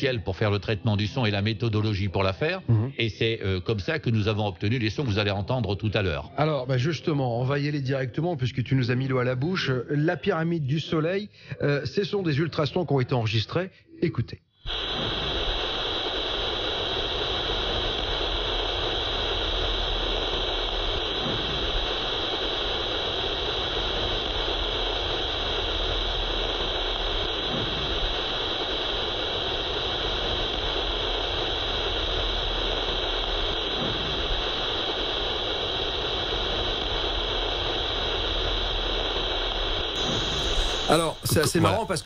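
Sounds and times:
steady high hiss: 0:14.7 - 0:42.0.

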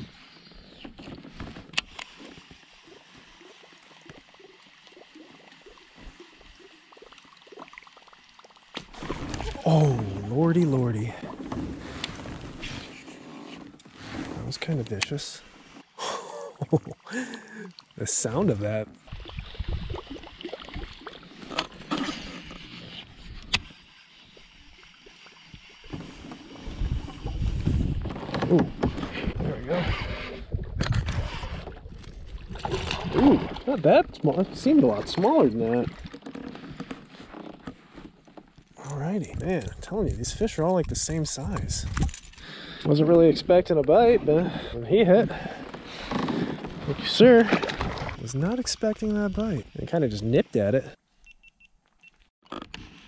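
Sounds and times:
water lapping and gurgling: 0:00.0 - 0:50.2
fish splash: 0:32.4 - 0:33.7.

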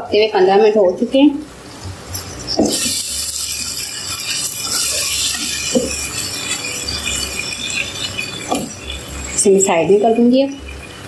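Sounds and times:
chicken sizzling in a pan: 0:01.5 - 0:11.0
utensil clinking on pan: 0:02.2 - 0:11.0.

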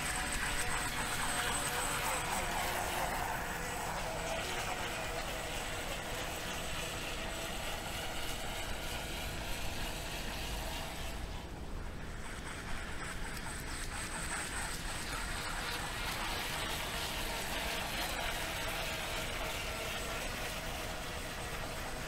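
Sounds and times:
model boat motors whining: 0:00.0 - 0:22.0.

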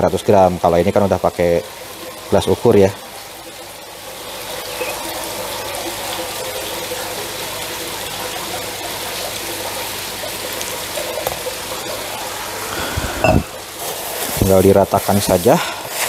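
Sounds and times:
water pouring onto grains: 0:05.2 - 0:16.0.

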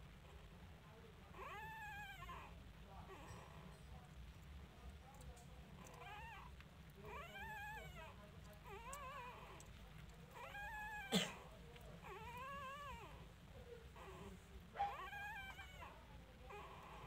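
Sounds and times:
puppies whimpering: 0:05.8 - 0:09.7, 0:10.3 - 0:11.1, 0:12.0 - 0:13.3, 0:13.9 - 0:17.0.

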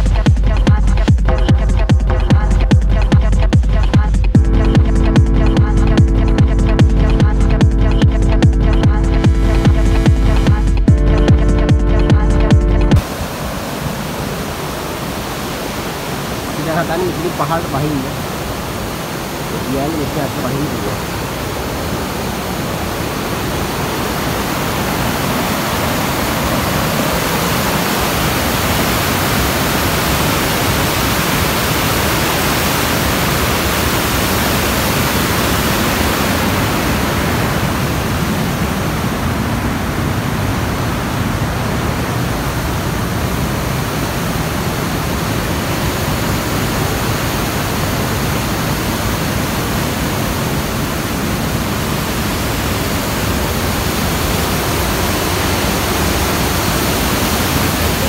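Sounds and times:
waterfall rushing: 0:12.6 - 0:58.0.

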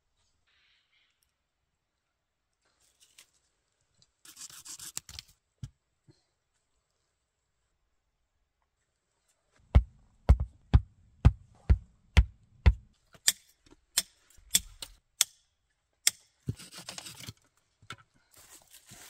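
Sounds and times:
sharp knocks with low thud: 0:09.7 - 0:12.9.

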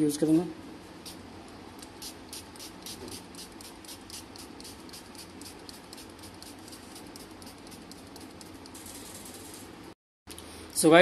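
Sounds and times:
spray bottle spritzing: 0:01.8 - 0:09.8.

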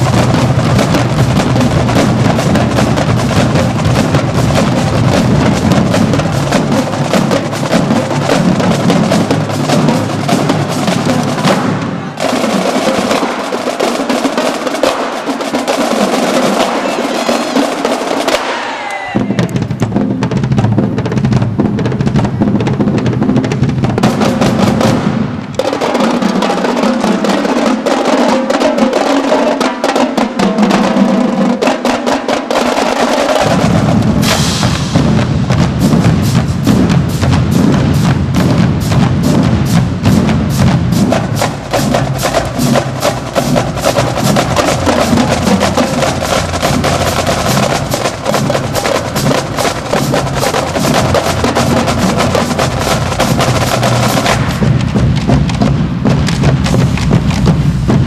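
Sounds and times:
bass drum beats: 0:00.0 - 0:13.2, 0:18.3 - 0:25.4, 0:33.4 - 0:58.0
snare and tenor drums: 0:00.0 - 0:58.0.

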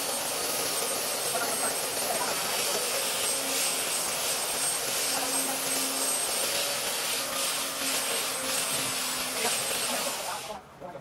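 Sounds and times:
belt sander sanding wood: 0:00.0 - 0:10.6.

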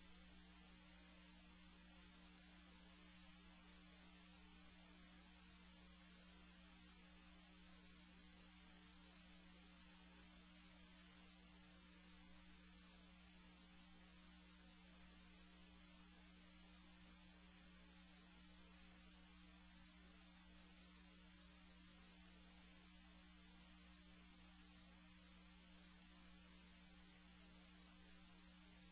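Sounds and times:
faint steady hum with hiss: 0:00.0 - 0:28.9.

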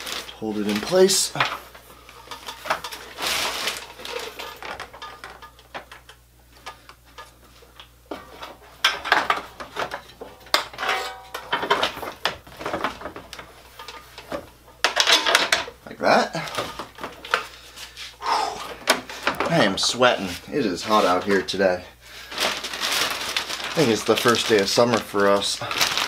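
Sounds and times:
metal and plastic parts clinking: 0:00.0 - 0:07.4, 0:08.1 - 0:15.8.

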